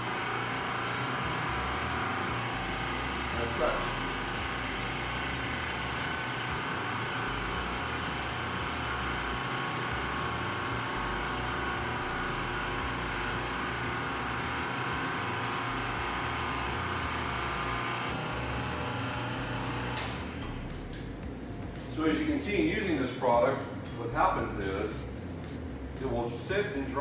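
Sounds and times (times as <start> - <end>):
pressure washer motor running: 0.0 - 21.2.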